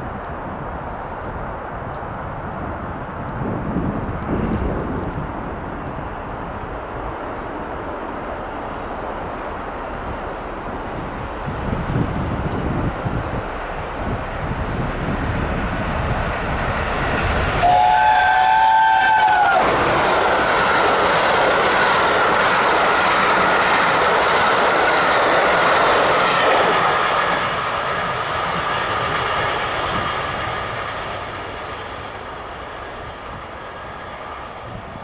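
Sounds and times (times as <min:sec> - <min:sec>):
steam train rumble: 0:00.0 - 0:35.0
train coaches rushing and clattering: 0:00.0 - 0:35.0
chime steam whistle: 0:17.6 - 0:19.6.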